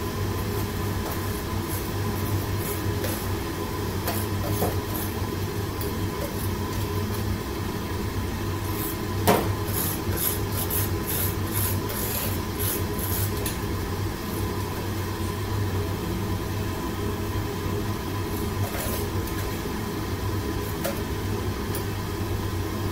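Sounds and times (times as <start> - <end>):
kitchen range and exhaust drone: 0.0 - 22.9
spoon scraping salt in tray: 8.6 - 9.0, 9.6 - 13.5, 18.6 - 19.1.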